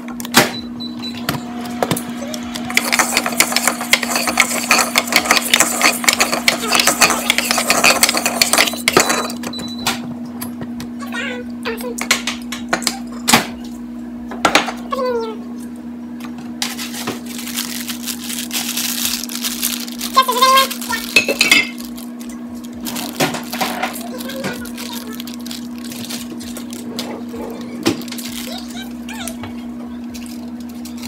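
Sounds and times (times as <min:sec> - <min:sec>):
steady low hum: 0:00.0 - 0:31.0
dishes and utensils clinking: 0:02.8 - 0:09.4, 0:21.1 - 0:21.8.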